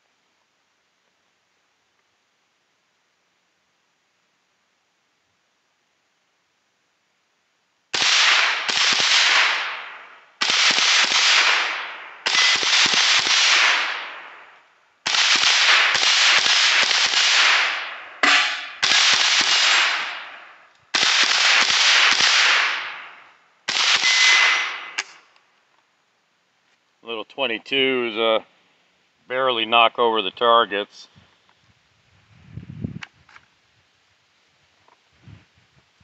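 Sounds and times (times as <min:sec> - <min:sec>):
rifle shots echoing: 0:07.9 - 0:25.3.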